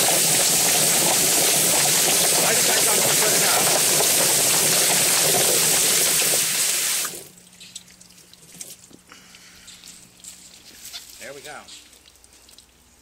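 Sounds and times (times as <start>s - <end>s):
chicken plucker rushing water and flapping: 0.0s - 7.4s.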